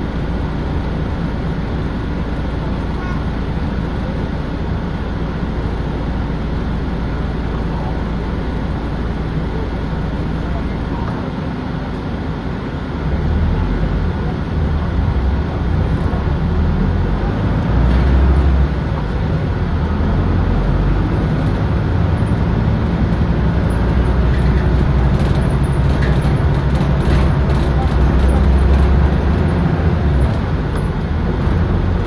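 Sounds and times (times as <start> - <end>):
bus diesel engine rumble: 0.0 - 32.0
road noise: 0.0 - 32.0.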